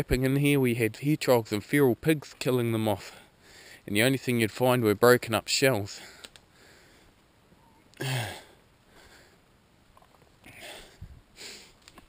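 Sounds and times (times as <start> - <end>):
man sighing: 7.9 - 8.6, 10.4 - 11.8.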